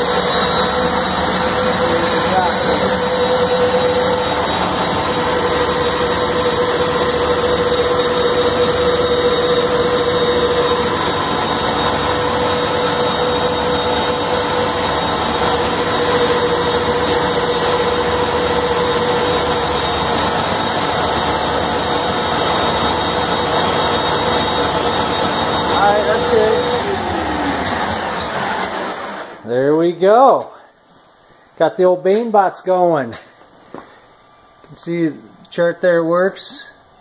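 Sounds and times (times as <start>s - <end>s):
electric motors whirring: 0.0s - 29.4s.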